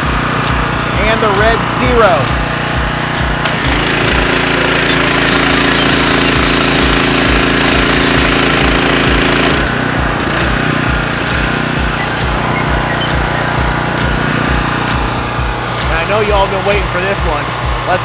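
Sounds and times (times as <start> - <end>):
pressure washer engine running: 0.0 - 18.0
hissing water jet on concrete: 3.5 - 8.6.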